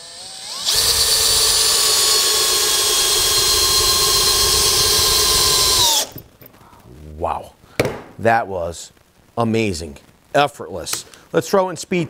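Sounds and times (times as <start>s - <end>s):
power drill motor whine: 0.0s - 6.2s.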